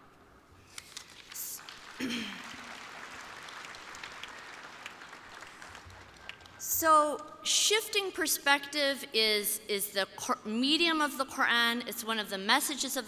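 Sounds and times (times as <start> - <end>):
audience applauding: 0.8 - 6.6.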